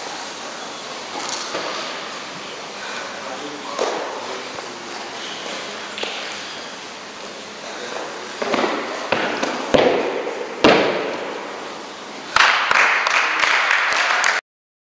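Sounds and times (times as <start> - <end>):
applause: 12.3 - 14.4.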